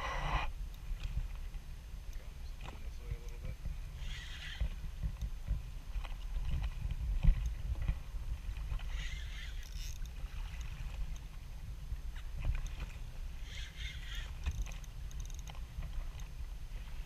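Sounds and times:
steady low rumble: 0.0 - 9.3
waves lapping against boat hull: 0.0 - 17.0.

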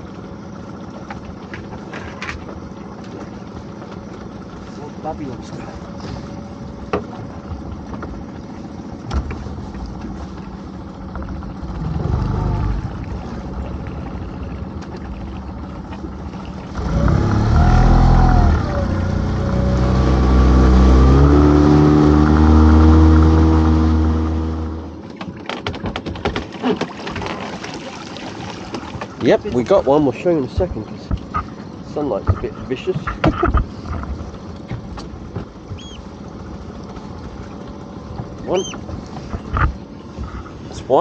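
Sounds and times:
hauler motor hum: 0.0 - 25.4
water splashing: 0.0 - 41.0.

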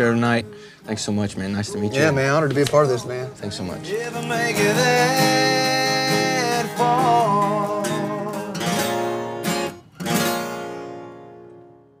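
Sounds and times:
acoustic guitars strumming: 0.0 - 12.0.

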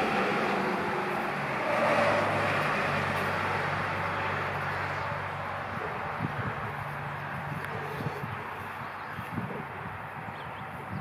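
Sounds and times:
motor engine droning: 0.0 - 10.3.

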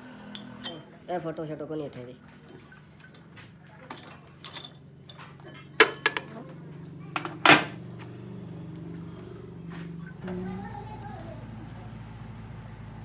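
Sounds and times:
low machine hum: 0.0 - 13.0
metal clanks and clinks: 0.2 - 1.0, 2.4 - 6.4, 7.2 - 7.8.

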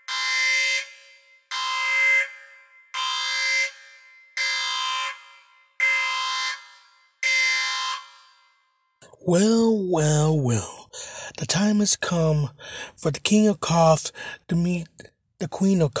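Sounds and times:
alarm blasts: 0.0 - 8.6.

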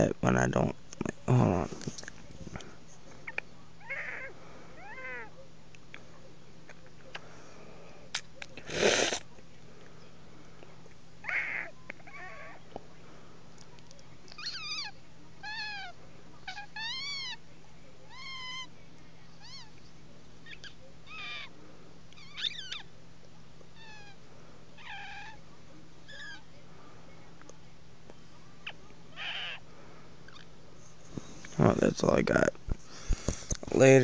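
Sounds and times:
teeth squeaking like cat meows: 14.3 - 15.8, 22.1 - 22.9, 28.6 - 29.6.

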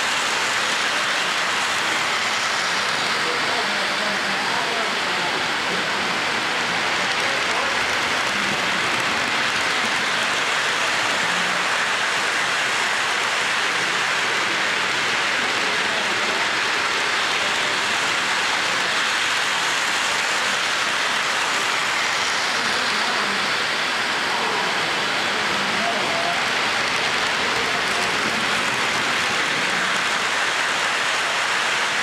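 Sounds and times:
model trains rattling on track: 0.0 - 32.0.

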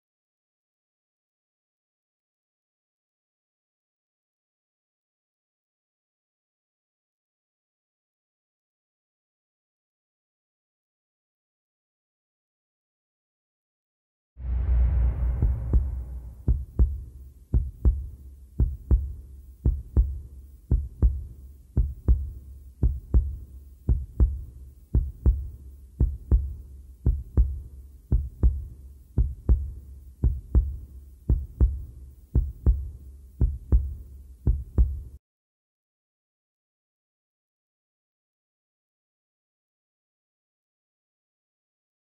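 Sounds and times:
heartbeat double thump: 14.4 - 35.1.

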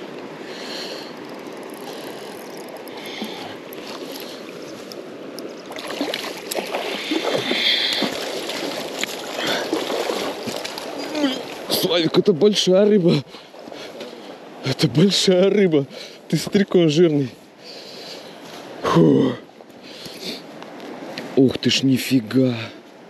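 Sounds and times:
irregular splashing: 0.0 - 14.4
river water running: 0.0 - 23.0.

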